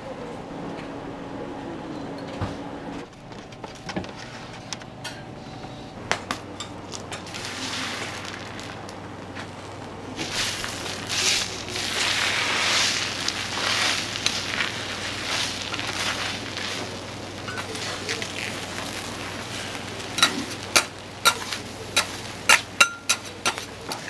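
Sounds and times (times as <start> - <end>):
loud sizzling on hot plate: 7.1 - 9.0, 9.6 - 24.0
metal spatulas knocking on griddle: 20.2 - 24.0.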